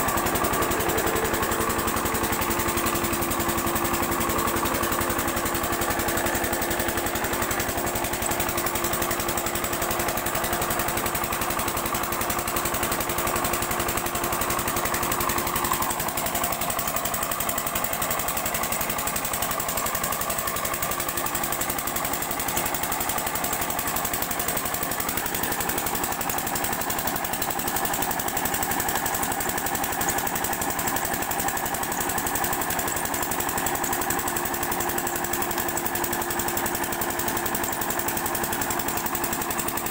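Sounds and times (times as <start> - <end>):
diesel pump engine running: 0.0 - 39.9.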